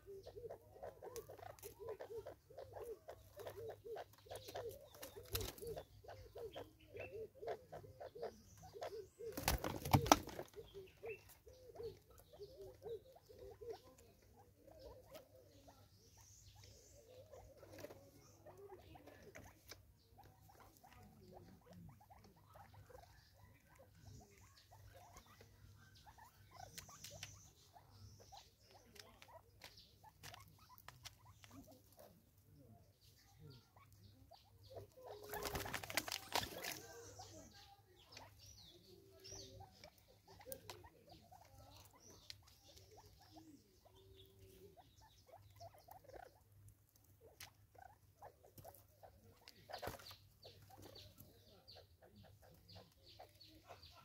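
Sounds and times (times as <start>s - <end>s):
birds pecking on wooden log: 0.0s - 54.0s
animals scuffling: 35.1s - 37.2s.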